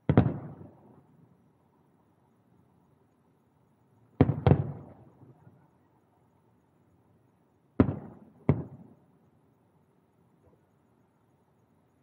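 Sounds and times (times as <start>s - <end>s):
firework shells booming: 4.2s - 5.0s, 7.8s - 8.9s.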